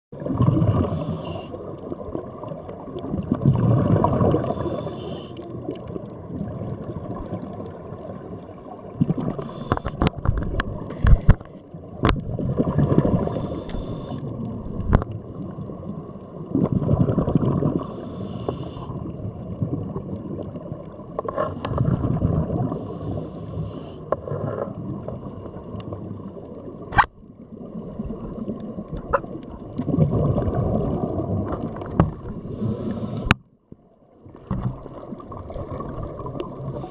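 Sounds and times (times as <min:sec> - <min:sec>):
exhaled bubbles rushing: 0:00.2 - 0:04.9, 0:05.6 - 0:11.4, 0:12.0 - 0:17.9, 0:21.4 - 0:22.8, 0:24.2 - 0:32.8, 0:34.2 - 0:36.9
regulator inhale hiss: 0:00.7 - 0:01.7, 0:04.4 - 0:05.5, 0:09.4 - 0:10.0, 0:13.2 - 0:14.3, 0:17.8 - 0:19.2, 0:22.6 - 0:24.2, 0:32.4 - 0:33.4, 0:36.7 - 0:36.9.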